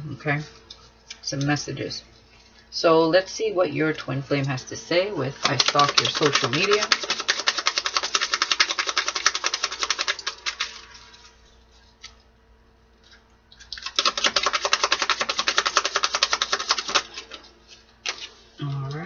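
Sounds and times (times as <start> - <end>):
cards being shuffled: 5.4 - 12.2, 13.8 - 19.0.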